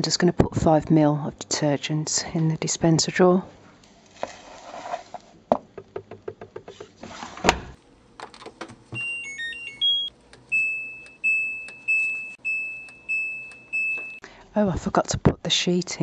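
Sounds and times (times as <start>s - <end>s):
control panel beeping: 9.0s - 14.2s.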